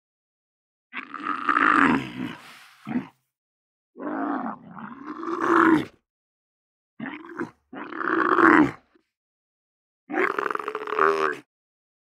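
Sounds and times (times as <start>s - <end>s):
camel grunting: 1.0s - 3.2s.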